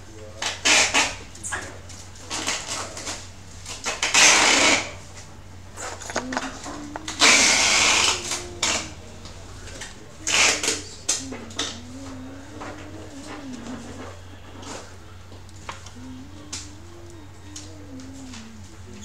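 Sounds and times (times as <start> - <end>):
dog whining: 5.8 - 14.8, 15.5 - 19.0.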